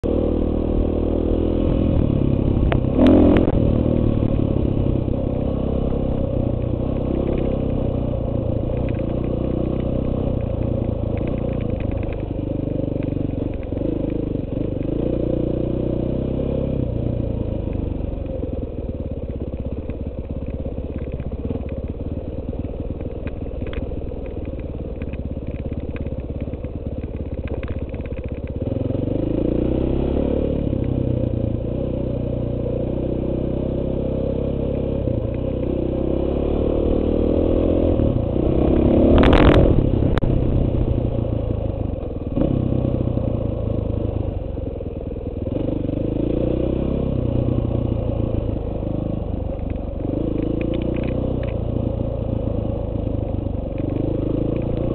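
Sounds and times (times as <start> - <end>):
motorcycle engine revving: 0.0 - 54.9
knocks and clicks from motorcycle: 6.6 - 7.9, 8.6 - 15.0, 19.2 - 28.8, 38.6 - 40.4, 49.5 - 51.8, 53.7 - 54.9.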